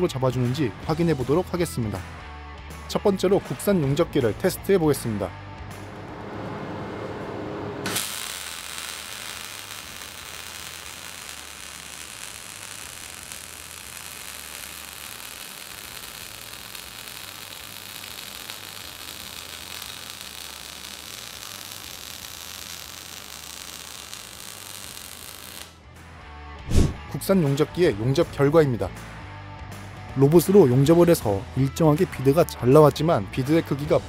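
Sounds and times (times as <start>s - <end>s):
welding arc hissing: 7.8s - 25.8s.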